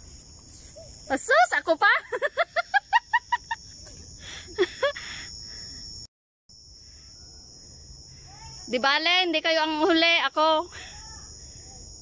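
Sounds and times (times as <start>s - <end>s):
high-pitched insect drone: 0.0s - 12.0s
person laughing: 2.0s - 5.2s.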